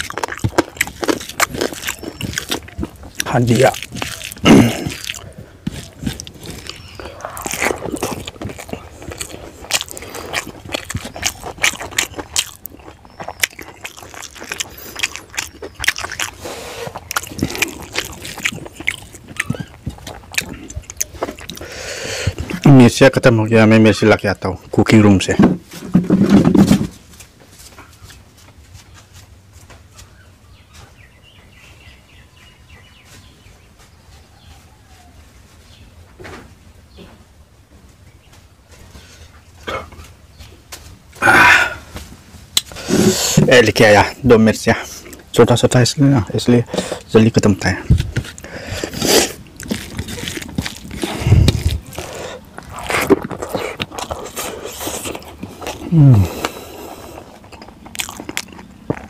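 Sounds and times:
mouth smacks: 0.0s - 22.8s, 41.2s - 43.9s, 46.5s - 59.0s
small birds chirping: 0.0s - 24.7s, 27.7s - 36.1s, 37.9s - 42.0s, 42.6s - 59.0s.

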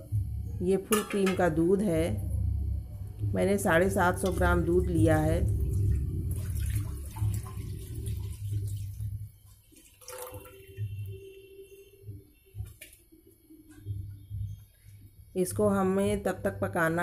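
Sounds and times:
milk pouring and splashing: 5.4s - 11.5s.

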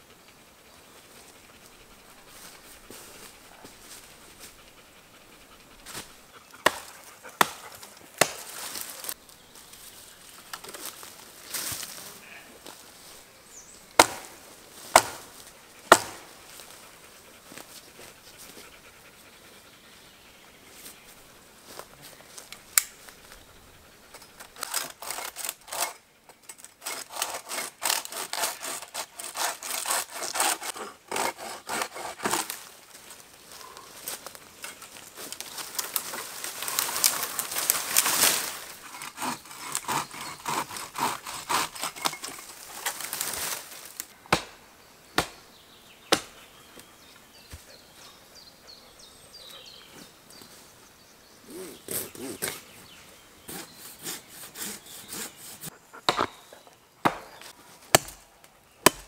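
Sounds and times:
hand saw sawing wood: 5.8s - 9.2s, 14.9s - 16.9s, 24.4s - 26.0s, 26.8s - 32.7s, 38.4s - 42.4s, 53.5s - 56.4s.

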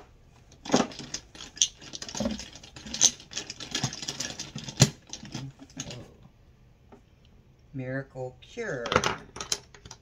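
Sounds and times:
plastic cosmetic items rattling: 0.5s - 6.0s, 8.9s - 10.0s.

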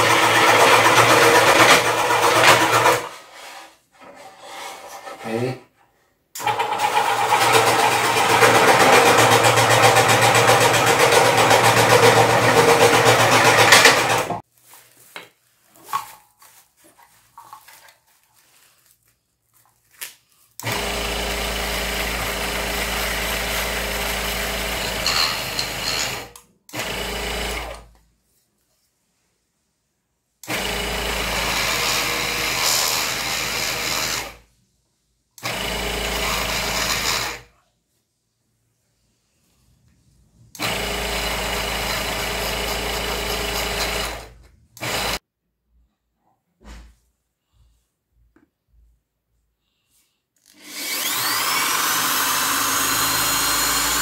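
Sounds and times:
scroll saw cutting wood: 0.0s - 5.6s, 6.4s - 14.4s, 20.6s - 27.8s, 30.5s - 34.4s, 35.4s - 37.5s, 40.6s - 45.2s, 50.4s - 54.0s
rotary tool whining: 50.4s - 54.0s.

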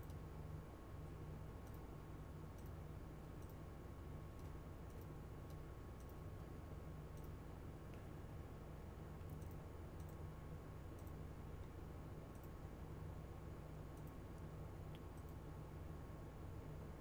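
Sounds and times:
low electrical hum: 0.0s - 17.0s
faint computer mouse clicks: 3.4s - 3.6s, 4.4s - 6.2s, 9.2s - 10.2s, 11.0s - 11.7s, 13.9s - 15.4s.

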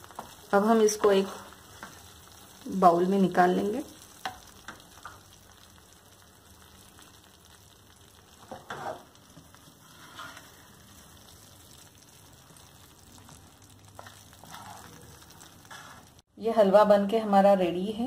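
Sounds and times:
faint sizzling in a pan: 0.0s - 18.0s
spatula scraping a pan: 8.4s - 11.4s, 13.9s - 16.2s.

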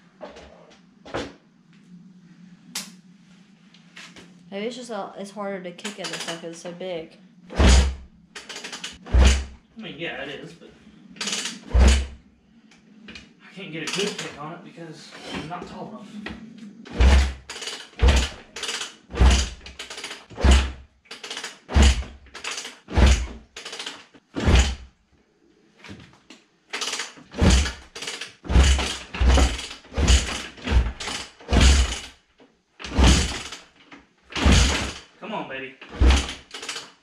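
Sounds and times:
motorcycle kick-start thumps: 7.6s - 9.6s, 17.0s - 24.9s, 26.8s - 32.2s, 32.8s - 33.6s, 34.4s - 35.0s, 35.9s - 36.9s.

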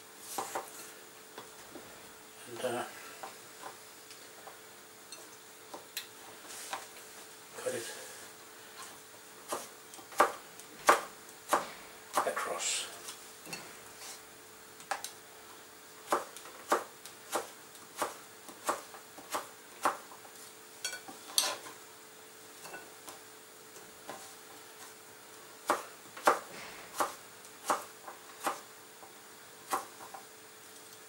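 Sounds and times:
faint steady hum: 0.0s - 31.0s
knife chopping on cutting board: 0.3s - 0.7s, 9.5s - 12.4s, 16.1s - 20.0s, 25.6s - 28.7s, 29.7s - 30.2s.

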